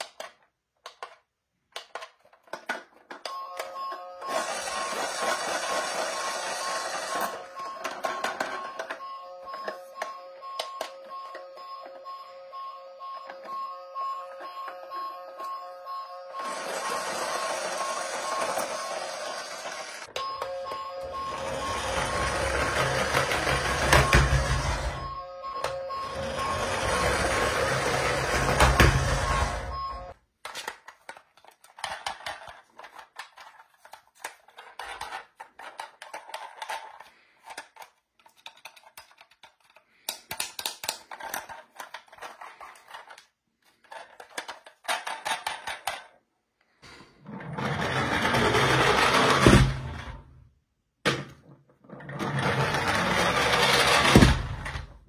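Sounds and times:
plastic toy cars rattling: 0:00.0 - 0:11.6, 0:16.4 - 0:20.1, 0:21.2 - 0:25.1, 0:26.2 - 0:46.2, 0:47.3 - 0:49.9, 0:51.7 - 0:55.0
toy car whirring: 0:01.8 - 0:12.2, 0:16.3 - 0:39.9, 0:40.7 - 0:46.1, 0:47.2 - 0:49.6, 0:51.8 - 0:54.9
toy electronic beeping: 0:03.2 - 0:30.2.

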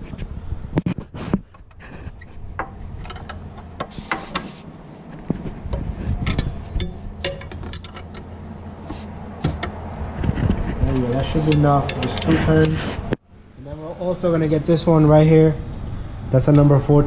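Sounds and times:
low steady hum: 0:00.0 - 0:17.0
gear wrench clicking on bolt: 0:06.2 - 0:08.3.

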